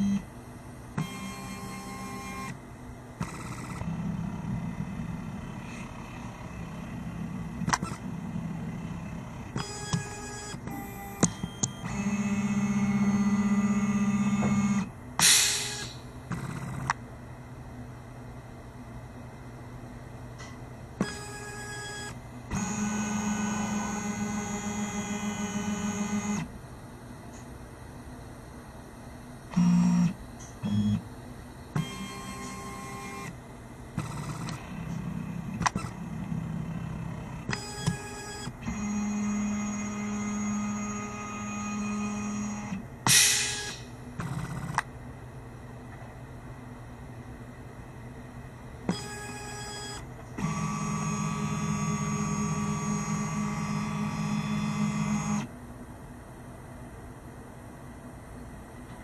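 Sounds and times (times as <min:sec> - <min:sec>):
stepper motor whines: 0:21.0 - 0:26.5, 0:48.9 - 0:55.5.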